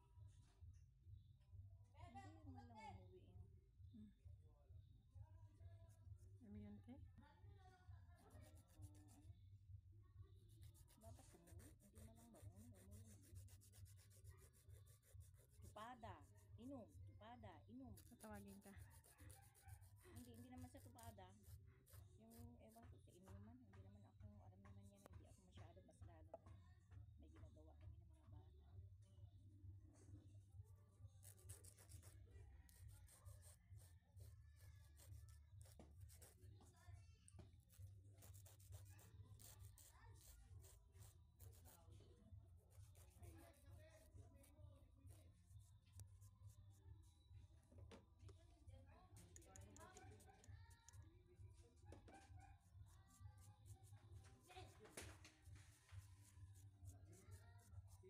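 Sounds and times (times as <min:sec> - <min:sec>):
hand file rasping on skin: 0:08.2 - 0:09.2, 0:10.5 - 0:17.0, 0:17.9 - 0:23.5, 0:31.2 - 0:41.9, 0:42.6 - 0:47.2, 0:49.2 - 0:51.0, 0:51.9 - 0:58.0
emery board rasping on skin: 0:10.5 - 0:16.4, 0:17.9 - 0:23.3, 0:31.2 - 0:32.1, 0:37.6 - 0:41.8.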